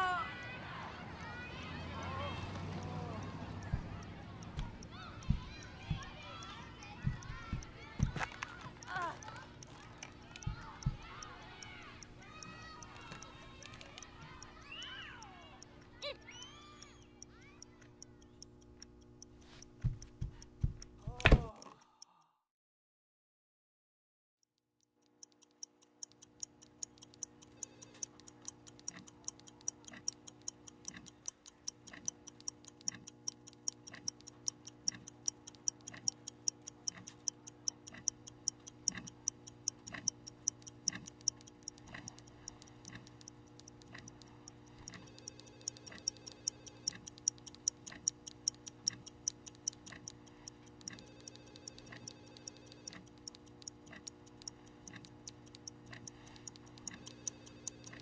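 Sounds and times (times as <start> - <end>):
clock ticking: 0.0 - 0.6, 1.2 - 22.3, 24.5 - 58.0.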